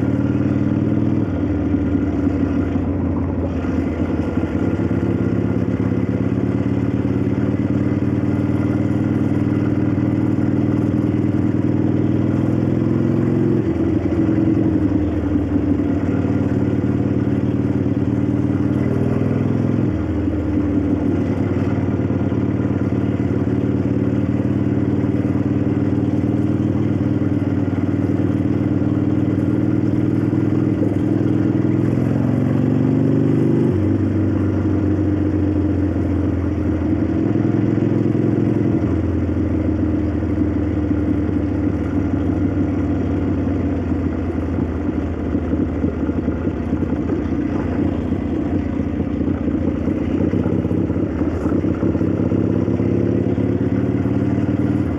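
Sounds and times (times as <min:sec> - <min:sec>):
motorcycle engine running: 0:00.0 - 0:54.9.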